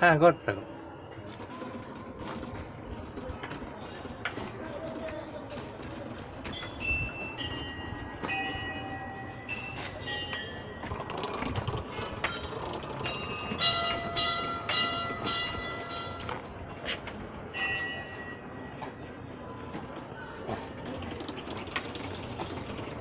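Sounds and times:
prayer wheels knocking and rumbling: 0.0s - 23.0s
small bells ringing: 6.4s - 16.8s, 17.4s - 19.3s.

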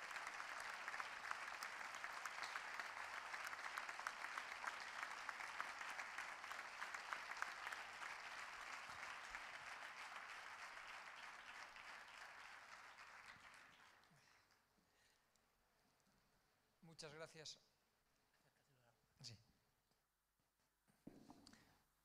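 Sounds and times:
audience applauding: 0.0s - 14.3s.

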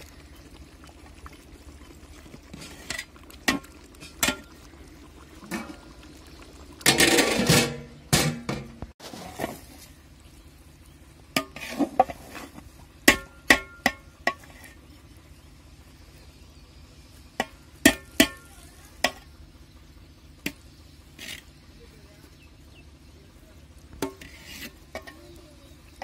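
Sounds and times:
metal ladle clanking on a pot: 2.8s - 4.5s, 6.8s - 8.8s, 13.0s - 14.6s, 17.4s - 19.3s, 23.9s - 25.4s.

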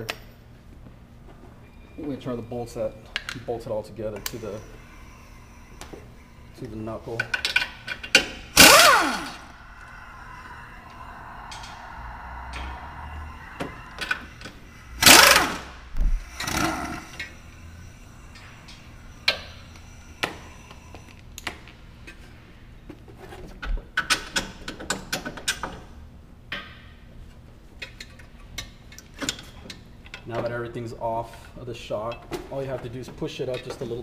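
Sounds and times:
impact wrench bursts: 7.3s - 9.6s, 14.1s - 17.3s.

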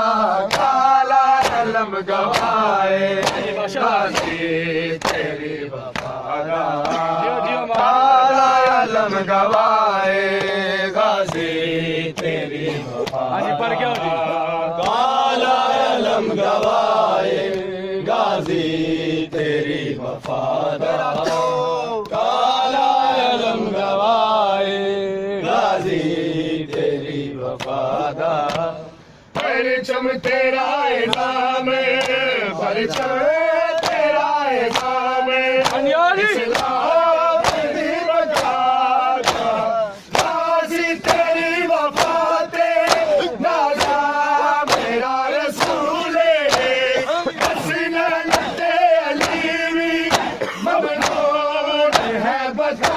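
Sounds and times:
men chanting a lament: 0.0s - 52.9s
hand slaps on chest: 0.4s - 0.8s, 1.4s - 1.7s, 3.2s - 3.5s, 39.2s - 40.4s, 41.9s - 42.2s, 43.8s - 44.0s, 44.6s - 44.9s, 50.1s - 50.4s.

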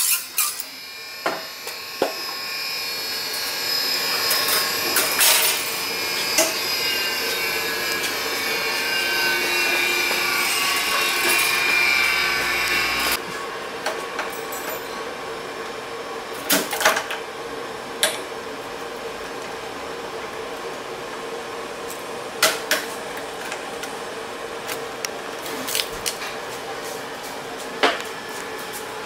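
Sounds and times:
steady machine hum: 0.4s - 16.5s.

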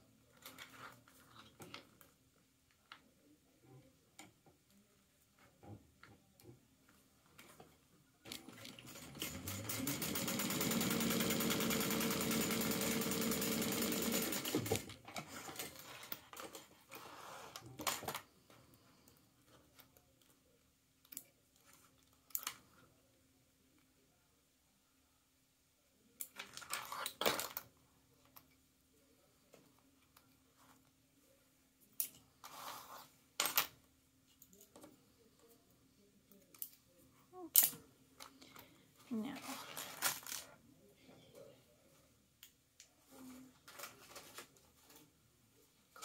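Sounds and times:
sewing machine stitching: 8.4s - 15.7s.

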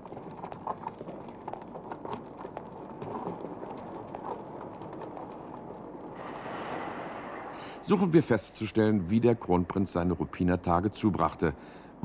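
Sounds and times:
hooves clip-clopping on cobbles: 0.0s - 7.1s.

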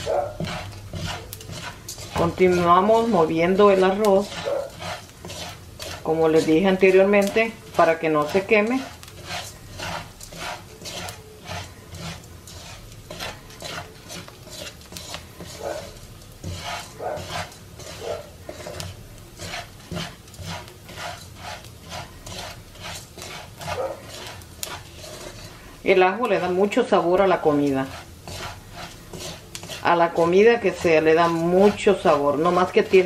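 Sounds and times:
spatula scraping rice in pan: 0.0s - 33.0s.

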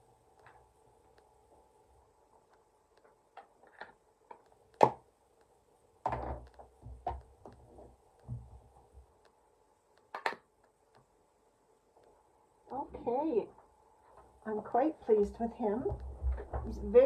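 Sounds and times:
soft knocks and thumps: 6.0s - 9.1s, 15.8s - 16.9s.

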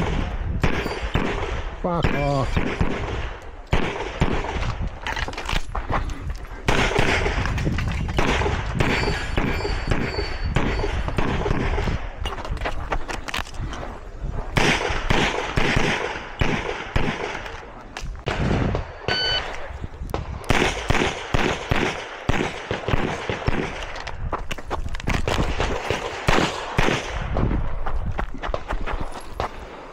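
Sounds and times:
gunshots: 0.0s - 4.8s, 6.6s - 12.4s, 14.4s - 24.0s, 25.1s - 27.5s
brief electronic tone: 19.1s - 19.5s.

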